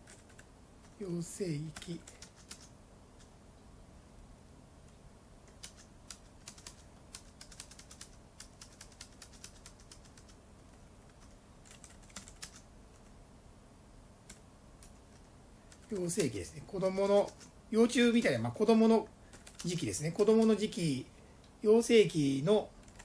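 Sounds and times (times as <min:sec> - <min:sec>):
typing on a keyboard: 0:00.0 - 0:01.0, 0:01.7 - 0:03.3, 0:05.5 - 0:10.4, 0:11.1 - 0:13.1, 0:14.2 - 0:16.4, 0:17.1 - 0:17.5, 0:19.3 - 0:20.6, 0:22.8 - 0:23.0.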